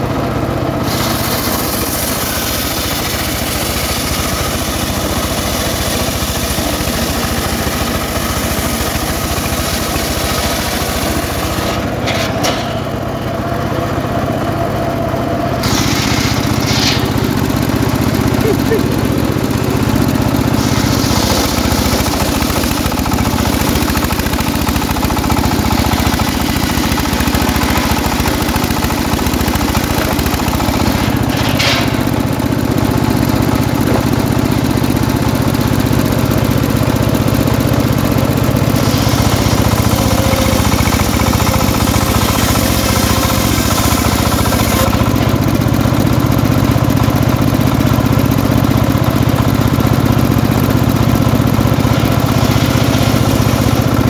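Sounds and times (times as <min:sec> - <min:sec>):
saw engine running: 0:00.0 - 0:54.0
saw blade cutting hiss: 0:00.8 - 0:06.5, 0:15.6 - 0:17.2, 0:20.6 - 0:24.2, 0:38.8 - 0:44.9.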